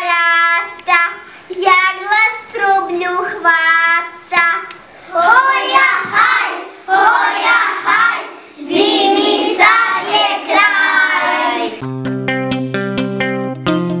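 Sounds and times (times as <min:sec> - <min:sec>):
children singing together: 0:05.0 - 0:11.8.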